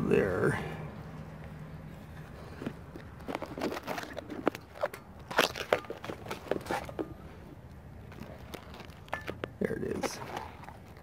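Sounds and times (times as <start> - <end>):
handling crunches and scrapes: 0.1 - 11.0.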